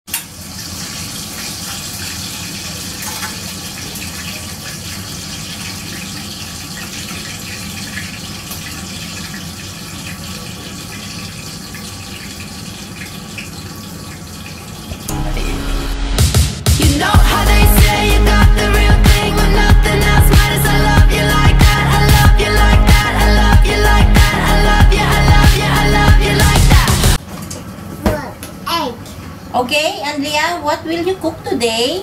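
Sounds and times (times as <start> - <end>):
steady rushing kitchen noise: 0.1 - 15.1.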